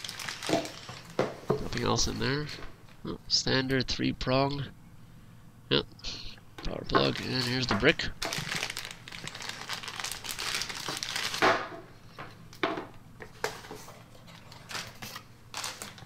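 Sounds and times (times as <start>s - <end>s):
plastic bag crinkling: 0.0s - 2.0s, 6.9s - 11.6s, 14.4s - 16.0s.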